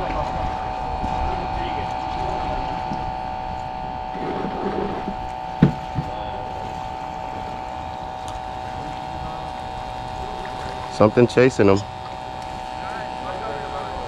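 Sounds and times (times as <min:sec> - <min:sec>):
motor hum with low rumble: 0:00.0 - 0:14.0.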